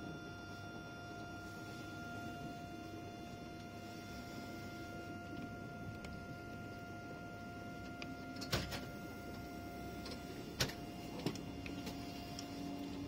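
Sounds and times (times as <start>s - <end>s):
faint steady whine: 0.0s - 13.0s.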